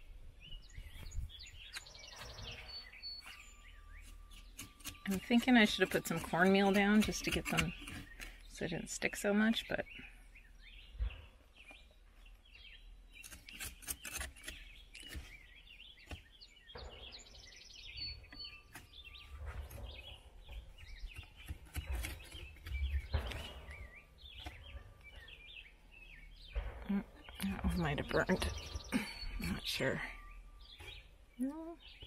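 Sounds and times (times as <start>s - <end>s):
small birds chirping: 0.0s - 32.0s.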